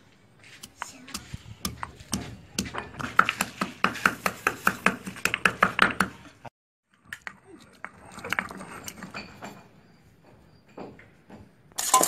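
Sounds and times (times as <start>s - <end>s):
stone pestle pounding in mortar: 1.1s - 6.2s.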